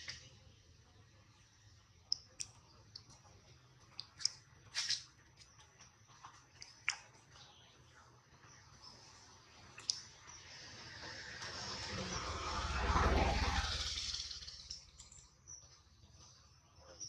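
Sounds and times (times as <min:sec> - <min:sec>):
monkey suckling wet clicks: 0:03.9 - 0:05.1, 0:06.6 - 0:07.2, 0:09.8 - 0:10.1.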